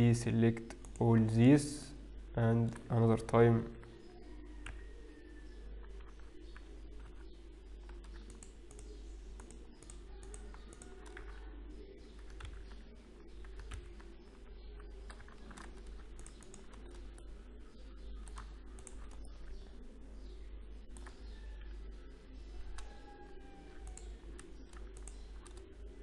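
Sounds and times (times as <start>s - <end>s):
keyboard and mouse clicking: 0.6s - 1.0s, 7.9s - 11.4s, 12.1s - 12.8s, 13.4s - 17.3s, 18.1s - 19.6s, 20.9s - 21.7s, 23.7s - 25.7s.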